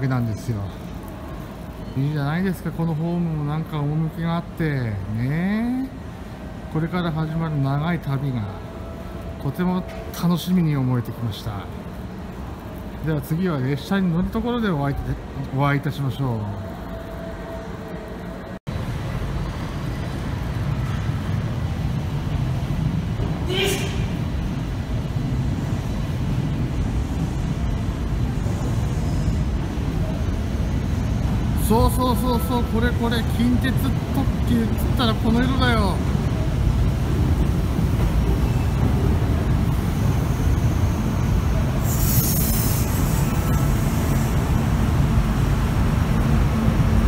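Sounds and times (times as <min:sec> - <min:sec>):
train rumbling: 0:00.0 - 0:47.0
high squeal of train: 0:22.6 - 0:47.0
brief high hiss: 0:41.8 - 0:44.4.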